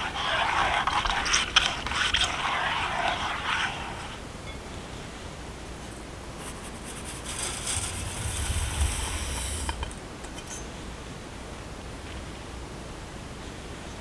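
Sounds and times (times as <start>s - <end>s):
powder pouring into a sieve: 6.8s - 9.8s.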